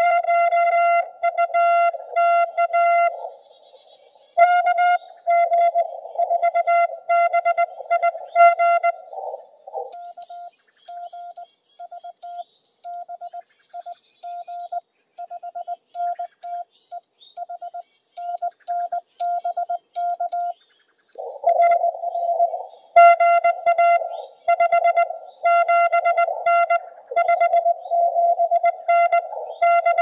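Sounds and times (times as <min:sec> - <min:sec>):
morse code beeps: 0:09.9 - 0:20.6, 0:23.0 - 0:30.0.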